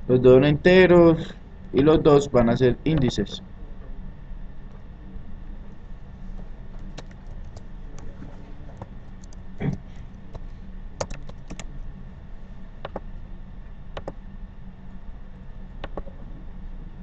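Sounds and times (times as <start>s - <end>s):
low steady hum: 0.0s - 17.0s
keyboard typing: 6.8s - 8.1s, 8.7s - 9.4s, 11.0s - 11.7s, 12.8s - 13.0s, 14.0s - 14.2s, 15.8s - 16.1s.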